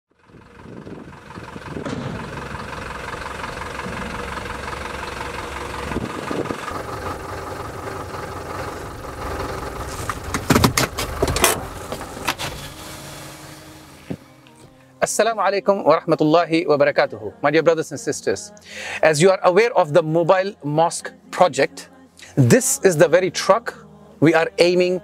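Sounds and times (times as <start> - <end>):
diesel truck engine idling: 0.1 - 14.8
sharp knocks: 1.7 - 6.9.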